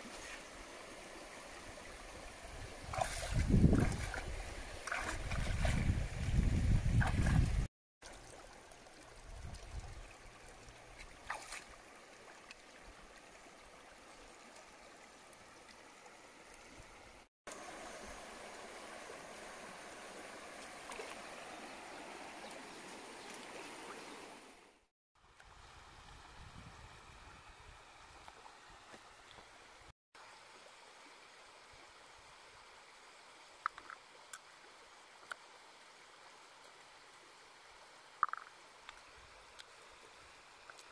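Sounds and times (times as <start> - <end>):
shallow river over stones: 0.0 - 40.9.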